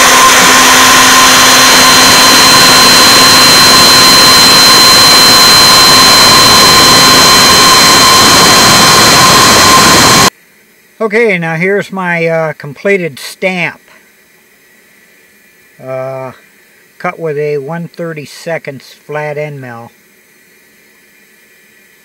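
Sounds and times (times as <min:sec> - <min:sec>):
router spindle high whine: 0:00.0 - 0:10.3.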